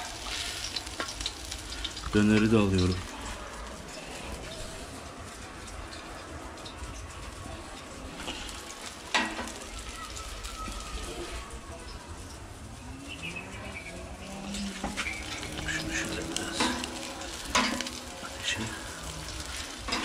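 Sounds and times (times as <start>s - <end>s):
meat sizzling on a grill: 0.0s - 20.0s
tongs and plates clicking: 14.7s - 18.2s.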